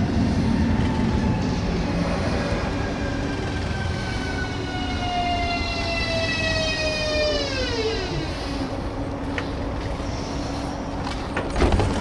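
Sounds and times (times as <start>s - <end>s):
low train running rumble: 0.0s - 12.0s
electric train motor whine: 0.7s - 10.3s.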